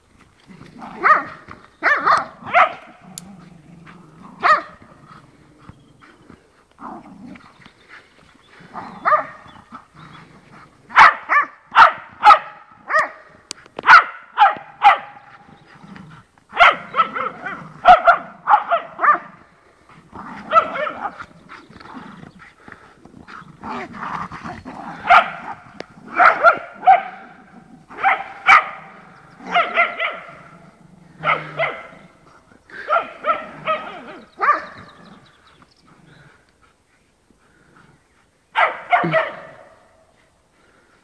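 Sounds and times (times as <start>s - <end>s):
dogs barking: 0.8s - 3.2s, 4.3s - 5.0s, 8.8s - 9.8s, 10.9s - 15.6s, 16.5s - 19.4s, 20.2s - 21.3s, 24.8s - 35.2s, 38.5s - 40.0s.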